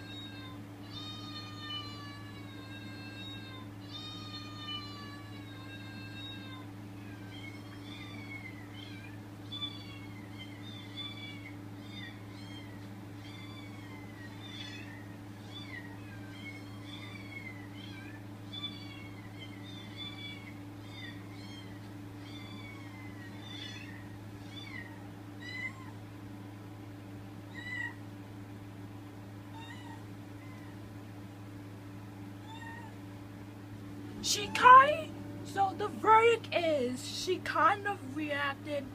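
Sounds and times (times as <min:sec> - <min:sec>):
cat meowing: 0:00.0 - 0:26.0, 0:27.5 - 0:28.0, 0:29.5 - 0:30.8, 0:32.4 - 0:33.0
steady low hum: 0:00.0 - 0:38.9.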